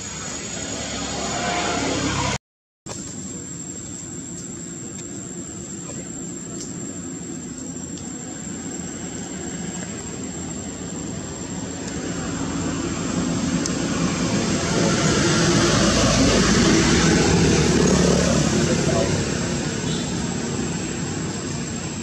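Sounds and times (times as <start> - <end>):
passing motor rushing: 8.8 - 22.0.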